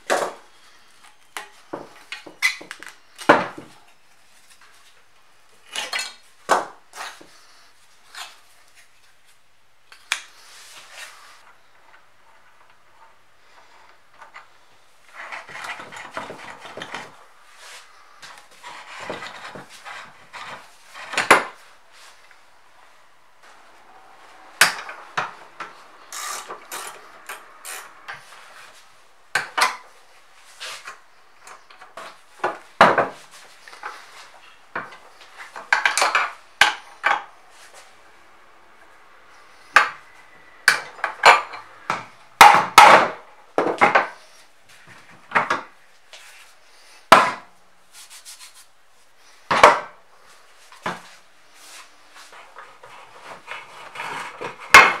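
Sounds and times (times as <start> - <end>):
metal scraping: 23.5 - 28.8.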